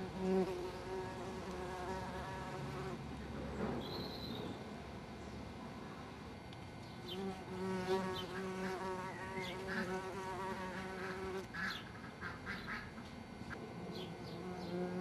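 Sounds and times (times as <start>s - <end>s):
bumblebee buzzing in flight: 0.0s - 3.0s, 7.1s - 11.5s, 14.2s - 15.0s.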